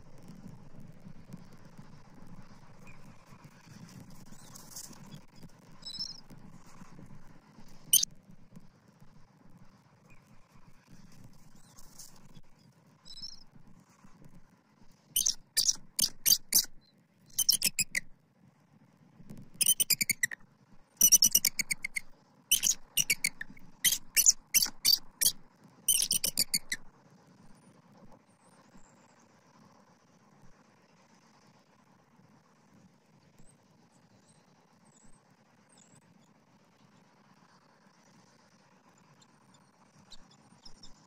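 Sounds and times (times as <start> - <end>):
eagle chittering calls: 15.2 - 16.8, 17.4 - 18.0, 19.6 - 20.4, 21.0 - 26.8.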